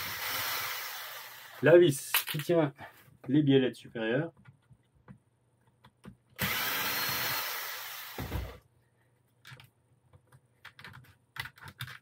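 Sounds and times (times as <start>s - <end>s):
cordless drill running: 0.0s - 1.6s, 6.4s - 8.6s
plastic parts clicking: 9.4s - 12.0s.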